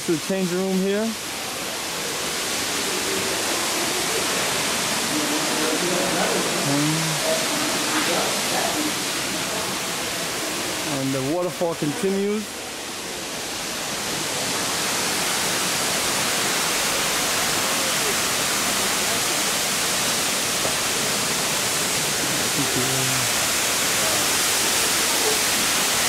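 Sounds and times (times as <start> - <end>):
waterfall rushing: 0.0 - 26.0
faint voices: 1.6 - 12.8, 17.0 - 26.0.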